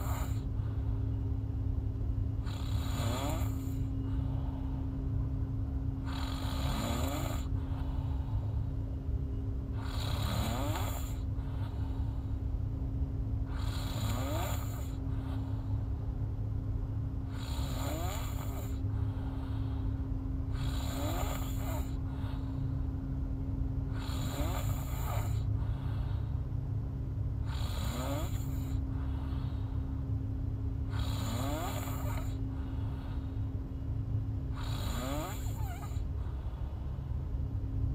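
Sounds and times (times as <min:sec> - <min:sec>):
woman snoring: 0:00.0 - 0:00.5, 0:02.4 - 0:04.8, 0:06.0 - 0:08.6, 0:09.7 - 0:12.4, 0:13.4 - 0:15.6, 0:17.3 - 0:22.5, 0:23.9 - 0:26.2, 0:27.4 - 0:29.7, 0:30.8 - 0:33.3, 0:34.5 - 0:36.1
steady low hum: 0:00.0 - 0:37.9.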